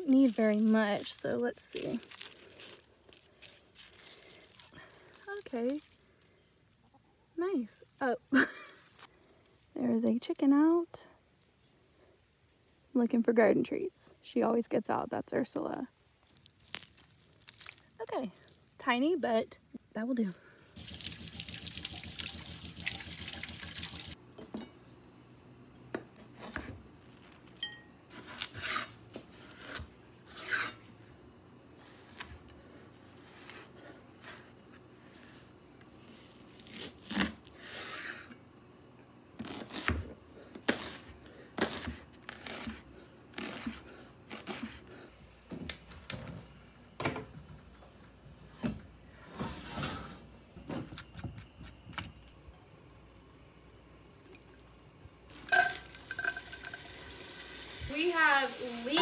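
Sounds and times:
kitchen tap running: 20.8s - 24.2s, 55.3s - 59.0s
kitchenware clattering: 55.4s - 56.9s.

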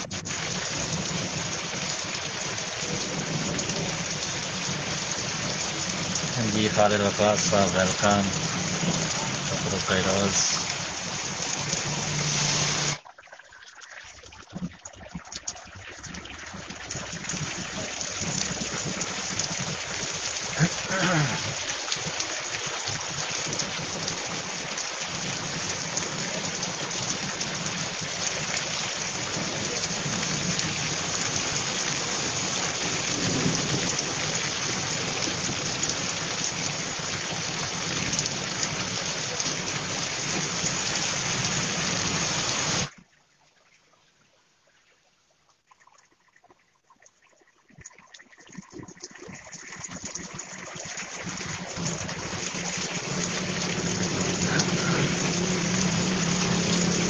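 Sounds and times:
heavy rain on road: 0.0s - 13.0s, 16.9s - 42.9s, 51.2s - 57.0s.

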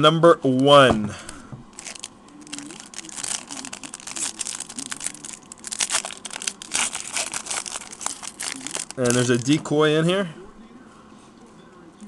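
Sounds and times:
foil wrapper tearing and crinkling: 1.7s - 9.6s.

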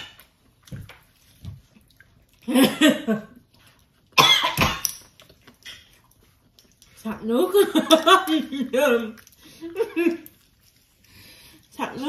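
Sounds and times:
woman coughing: 4.2s - 4.8s.

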